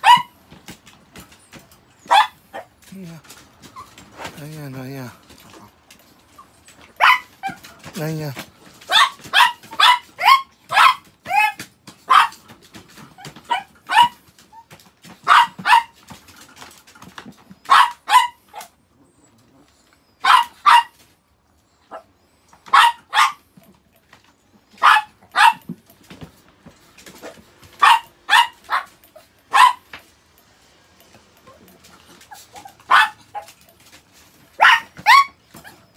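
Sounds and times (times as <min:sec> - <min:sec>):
small dog yapping: 0:00.0 - 0:00.4, 0:01.4 - 0:02.8, 0:06.3 - 0:07.8, 0:08.8 - 0:16.1, 0:17.5 - 0:18.8, 0:20.2 - 0:21.0, 0:22.7 - 0:23.5, 0:24.7 - 0:25.7, 0:27.1 - 0:30.0, 0:31.4 - 0:33.7, 0:34.5 - 0:35.9.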